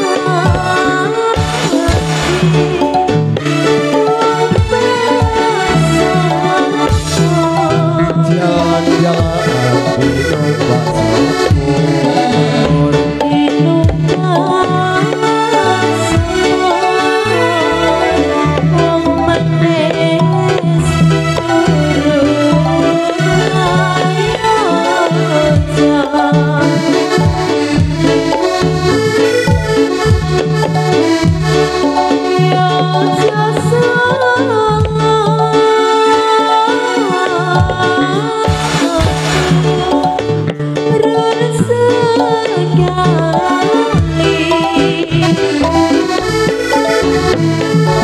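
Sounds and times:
drum hits: 0:00.0 - 0:17.5, 0:18.1 - 0:33.8, 0:38.5 - 0:41.1
keyboard melody: 0:00.0 - 0:48.0.

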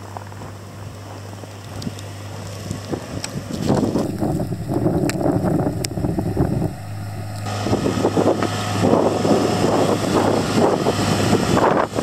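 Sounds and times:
gusty wind buffeting microphone: 0:03.6 - 0:08.4
vehicle engine droning: 0:03.9 - 0:08.8.

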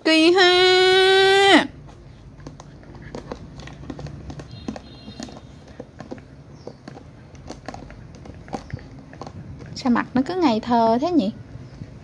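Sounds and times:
teeth gnawing on plastic toy: 0:01.8 - 0:09.9.

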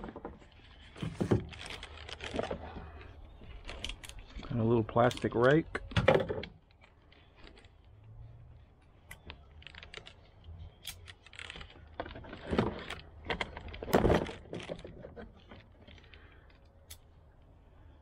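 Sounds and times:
plastic packaging crinkling: 0:00.0 - 0:05.5, 0:09.2 - 0:16.4.

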